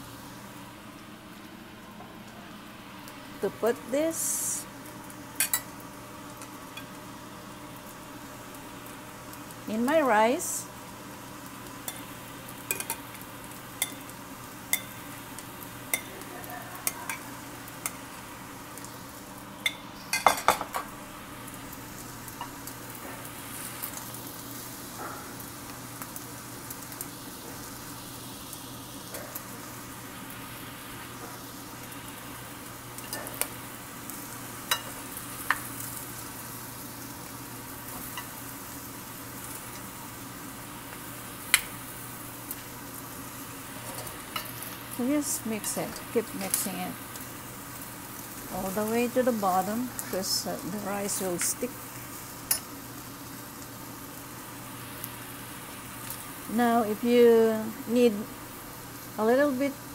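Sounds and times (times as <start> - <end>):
rice sizzling in a pan: 0.0 - 59.9.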